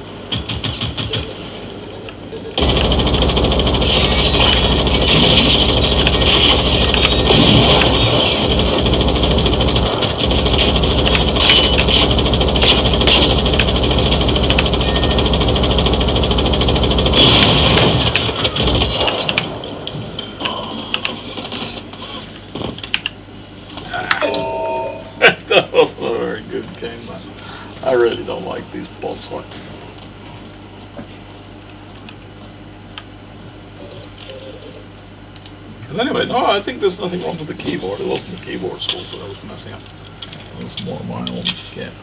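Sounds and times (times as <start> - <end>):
video game automatic gunfire: 0.3 - 1.3, 2.6 - 19.5
scattered game sounds: 2.6 - 22.9.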